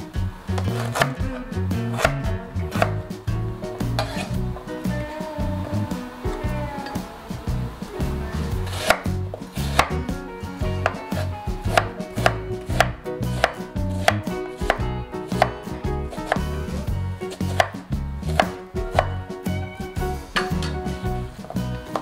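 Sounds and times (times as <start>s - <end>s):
knife chopping on wooden board: 4.0s - 4.3s, 8.7s - 10.0s, 10.8s - 16.5s, 17.4s - 19.1s.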